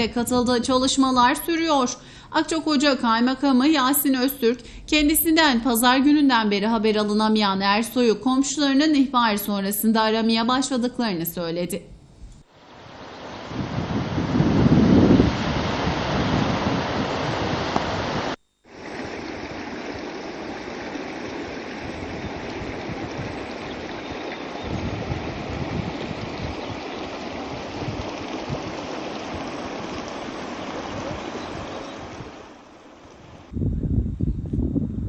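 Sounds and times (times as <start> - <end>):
river water rushing: 12.6 - 14.4, 15.3 - 33.5.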